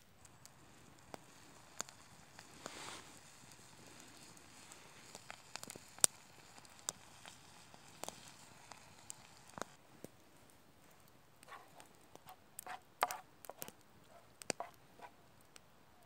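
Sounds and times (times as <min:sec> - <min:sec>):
campfire crackling and popping: 0:00.0 - 0:16.0
wooden spoon scraping a frying pan: 0:11.5 - 0:15.1.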